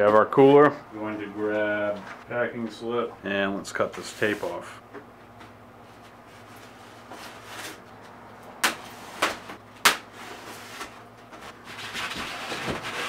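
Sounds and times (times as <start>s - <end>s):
foam and tape rustling: 6.2s - 7.9s, 8.6s - 13.0s.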